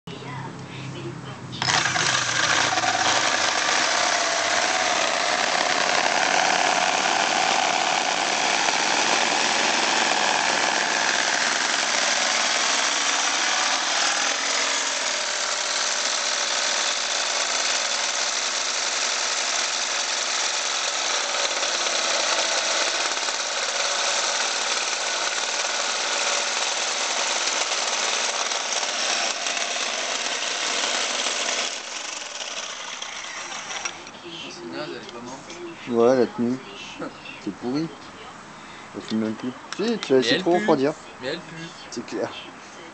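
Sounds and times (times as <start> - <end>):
electric drill motor whine: 1.6 - 34.1
hole saw cutting metal: 1.6 - 34.2.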